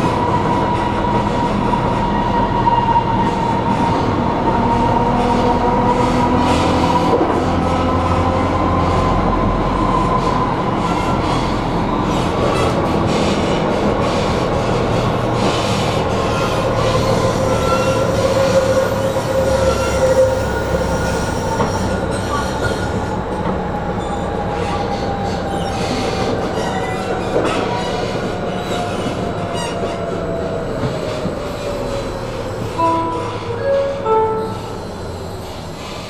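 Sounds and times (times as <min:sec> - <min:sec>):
tram rolling on rails: 0:00.0 - 0:36.0
high wheel squeal: 0:15.6 - 0:23.1, 0:31.0 - 0:36.0.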